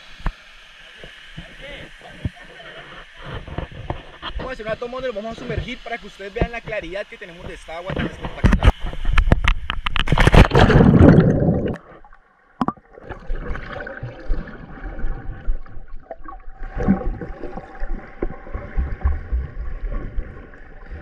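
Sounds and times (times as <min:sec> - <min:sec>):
muffled underwater rumble and hiss: 0:00.0 - 0:09.8
water splashing and sloshing: 0:09.8 - 0:21.0.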